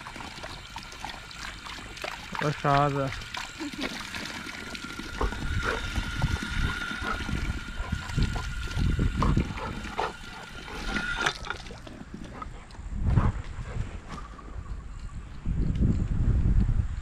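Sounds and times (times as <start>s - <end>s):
water running and splashing: 0.0s - 12.5s.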